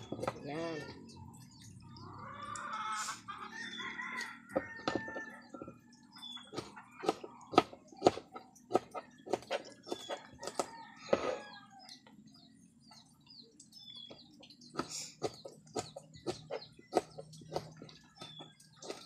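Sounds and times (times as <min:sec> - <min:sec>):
chickens clucking: 0:01.9 - 0:05.7.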